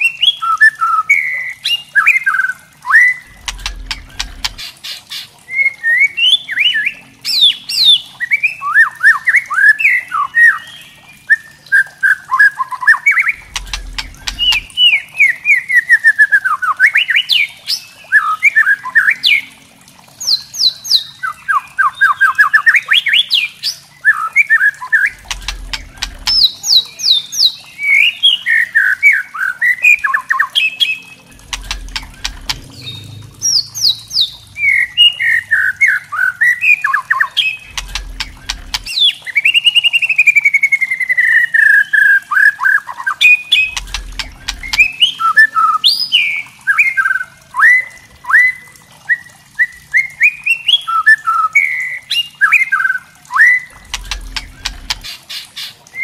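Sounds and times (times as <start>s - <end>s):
bird chattering and whistling: 12.9s - 14.8s, 36.5s - 39.6s, 43.5s - 45.6s.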